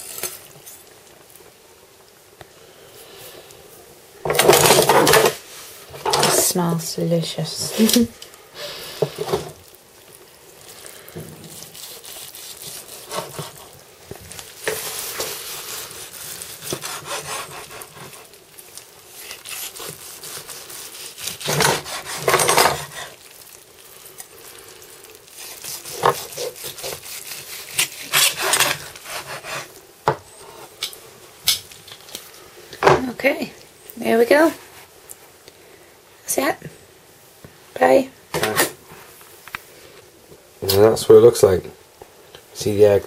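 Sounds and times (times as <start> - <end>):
knife sawing through roast chicken: 11.4 - 13.8, 14.8 - 18.4, 19.1 - 23.2, 25.3 - 29.7
knife scraping plastic board: 21.2 - 23.1, 25.7 - 29.7.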